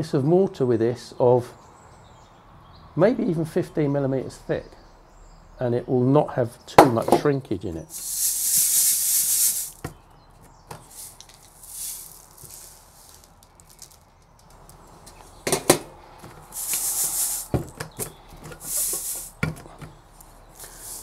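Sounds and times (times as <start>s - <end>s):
sand pouring and rattling: 7.9s - 9.8s, 10.8s - 15.4s, 16.4s - 17.8s, 18.6s - 19.5s, 20.5s - 21.0s
metal sieves clinking and knocking: 7.9s - 9.9s, 10.8s - 14.7s, 16.4s - 19.7s, 20.6s - 21.0s.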